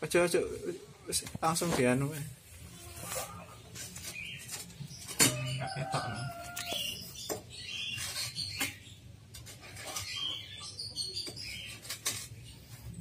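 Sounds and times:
birds chirping: 3.0s - 13.0s.

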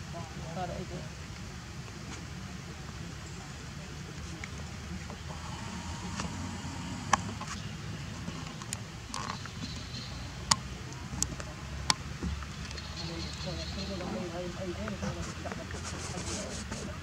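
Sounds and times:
low background rumble: 5.2s - 8.3s.

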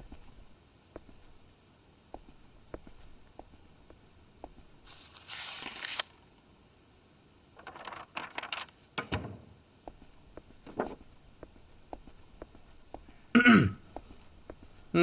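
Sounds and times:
paper sheets rustling: 4.8s - 6.2s, 7.6s - 8.9s, 10.6s - 11.0s.

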